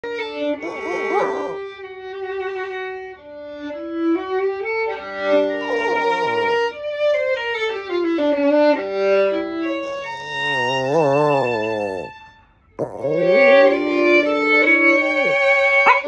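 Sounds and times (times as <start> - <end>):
solo violin melody: 1.6 - 10.5, 13.3 - 16.0.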